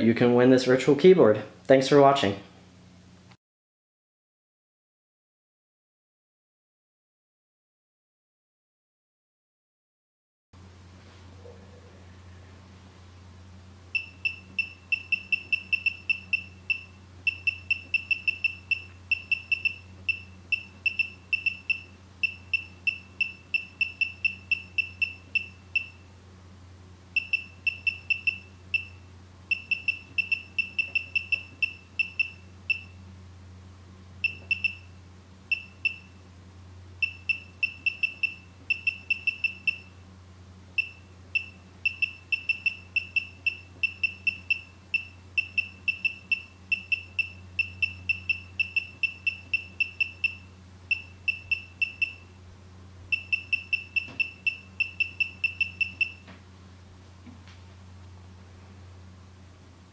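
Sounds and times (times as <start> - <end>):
faint steady low hum: 10.6 - 59.9
short high keystroke beeps: 14.0 - 26.0, 27.2 - 33.0, 34.2 - 34.9, 35.5 - 36.2, 37.0 - 39.9, 40.8 - 52.3, 53.1 - 56.2.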